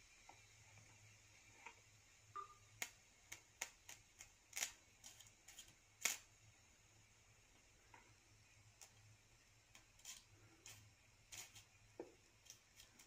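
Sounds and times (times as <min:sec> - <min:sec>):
electric arc popping: 0:02.3 - 0:06.4, 0:09.7 - 0:11.8.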